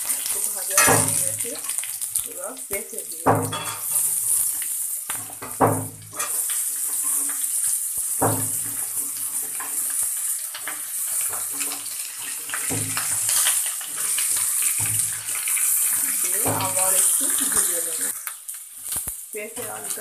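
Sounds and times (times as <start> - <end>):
hot oil sizzling: 0.0 - 20.0
spatula clinking on pan: 0.7 - 1.8, 3.3 - 4.1.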